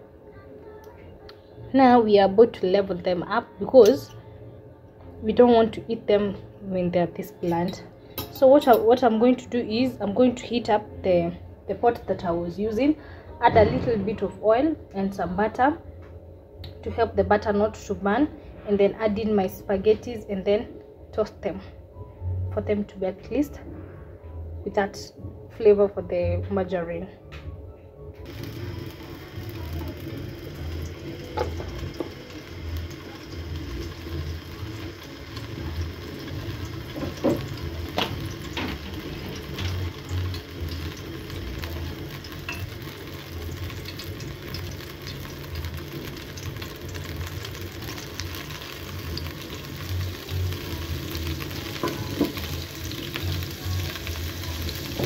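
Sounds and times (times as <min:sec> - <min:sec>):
oil and butter sizzling: 0:28.2 - 0:55.0.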